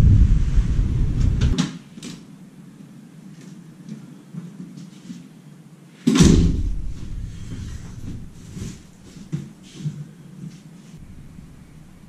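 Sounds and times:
loud thump: 0:00.0 - 0:01.6, 0:06.1 - 0:08.9
low rumble: 0:00.0 - 0:01.6, 0:11.0 - 0:12.0.

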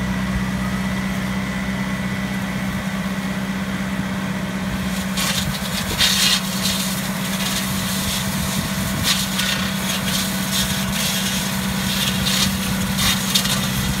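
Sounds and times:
tractor engine running under load: 0:00.0 - 0:14.0
pruner blades hissing through branches: 0:04.7 - 0:14.0.

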